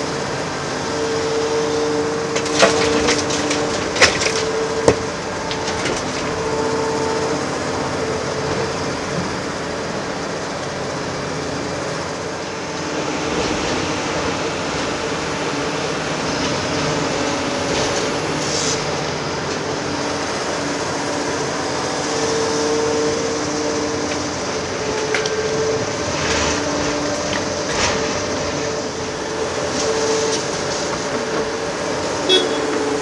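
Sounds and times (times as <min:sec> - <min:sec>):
excavator engine and hydraulics: 0:00.0 - 0:33.0.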